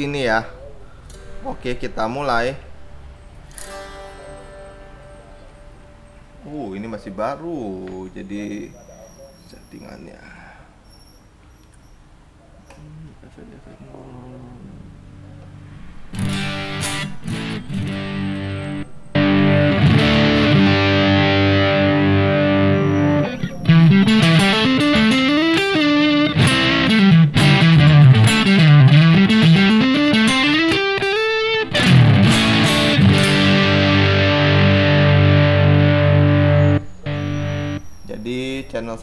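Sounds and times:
electric guitar playing: 0:00.7 - 0:06.5, 0:15.5 - 0:37.9.

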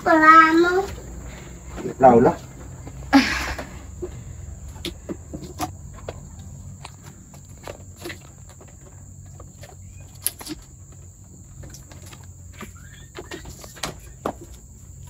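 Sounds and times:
faint bird chirps: 0:12.5 - 0:14.5.

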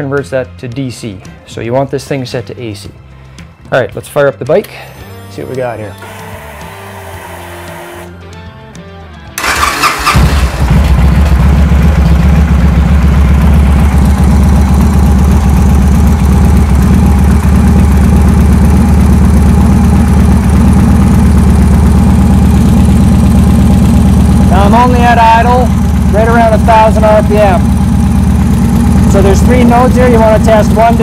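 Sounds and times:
motorcycle engine starting and idling: 0:09.4 - 0:31.0.

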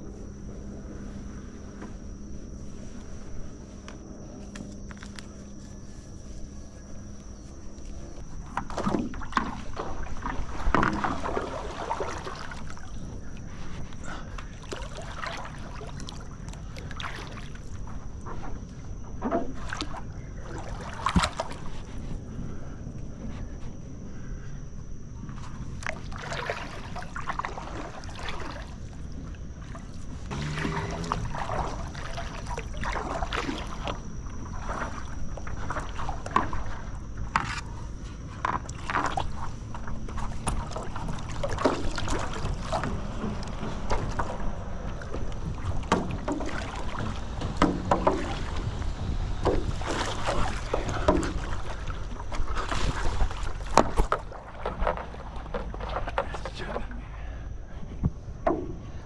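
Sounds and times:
water running along board: 0:00.0 - 0:22.6, 0:25.3 - 0:57.0
wind rumble on microphone: 0:00.0 - 0:55.6
paddle splashing in water: 0:08.4 - 0:18.5, 0:19.2 - 0:22.1, 0:25.8 - 0:56.9.

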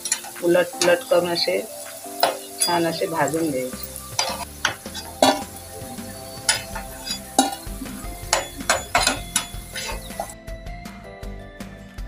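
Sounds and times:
metal spatula clinking on pan: 0:00.0 - 0:01.1, 0:02.2 - 0:05.6, 0:06.4 - 0:10.4
faint oil sizzling: 0:00.0 - 0:10.4.

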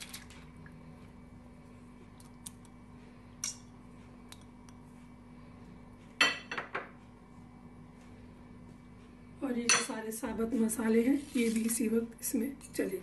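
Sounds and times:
kitchenware clatter: 0:06.2 - 0:06.9.

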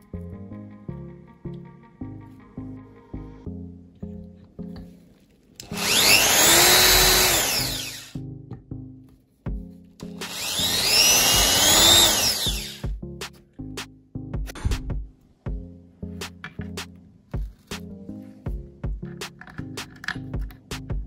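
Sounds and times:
faint background music: 0:00.0 - 0:21.0
power drill boring into wood: 0:05.6 - 0:08.2, 0:10.2 - 0:12.8.

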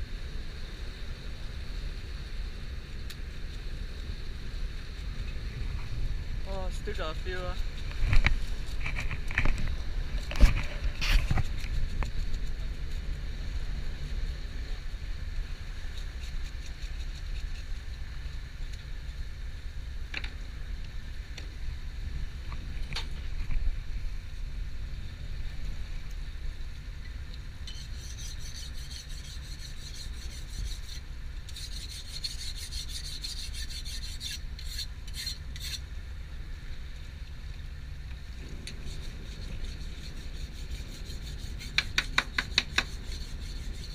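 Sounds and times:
low rumble of boat: 0:00.0 - 0:43.9
knife scraping fish: 0:27.7 - 0:35.8, 0:38.8 - 0:43.9.

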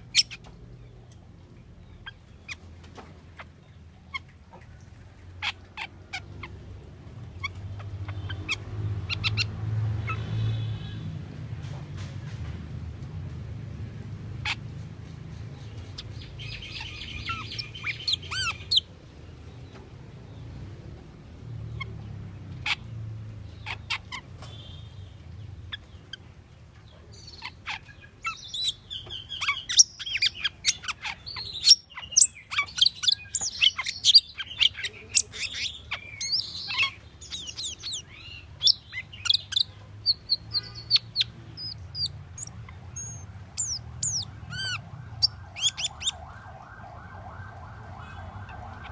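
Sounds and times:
starling calling: 0:00.0 - 0:00.5, 0:07.3 - 0:11.0, 0:15.5 - 0:18.9, 0:27.1 - 0:46.4.

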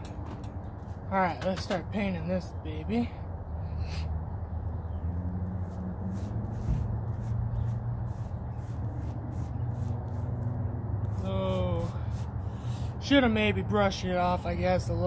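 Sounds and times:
steady low rumble: 0:00.0 - 0:15.0
paintbrush stroking wood: 0:05.4 - 0:13.1.

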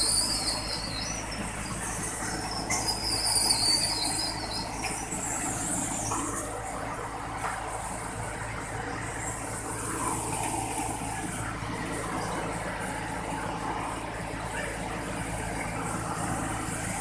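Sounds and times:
high wavering metallic squeal: 0:00.0 - 0:06.5
belt conveyor machine hum: 0:00.0 - 0:17.0.

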